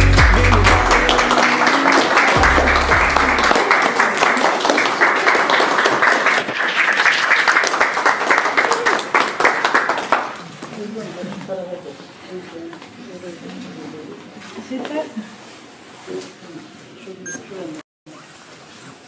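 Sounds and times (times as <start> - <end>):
pop song: 0.0 - 3.5
group clapping: 0.0 - 10.8.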